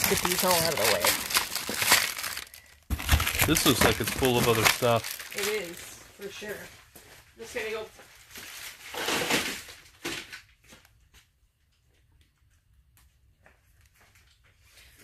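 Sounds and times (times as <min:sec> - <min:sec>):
cardboard and plastic packaging rustling: 0:00.0 - 0:11.0.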